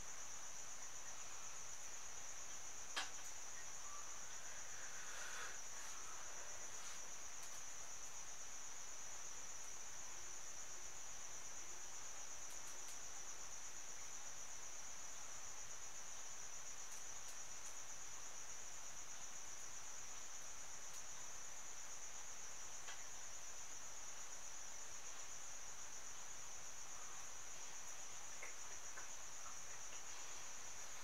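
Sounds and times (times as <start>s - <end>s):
crickets chirring: 0.0s - 31.0s
faint ticks: 7.3s - 7.8s, 12.4s - 13.1s, 16.8s - 17.9s, 19.2s - 21.3s, 22.8s - 23.1s, 27.8s - 31.0s.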